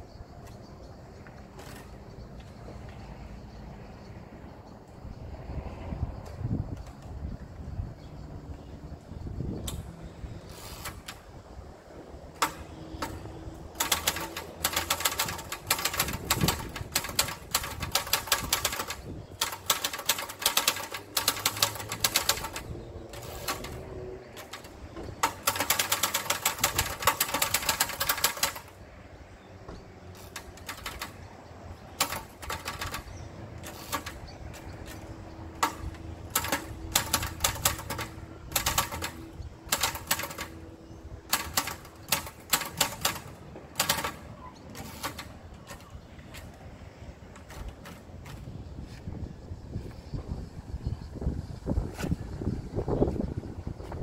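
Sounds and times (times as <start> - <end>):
manual typewriter key strikes: 12.4 - 28.8, 30.2 - 40.6, 41.3 - 46.5.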